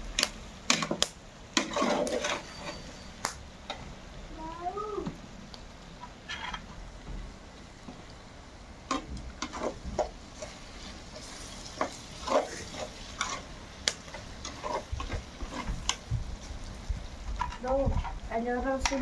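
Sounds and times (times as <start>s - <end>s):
utensil scraping in a pot: 1.5s - 3.2s, 6.0s - 6.7s, 8.9s - 16.0s.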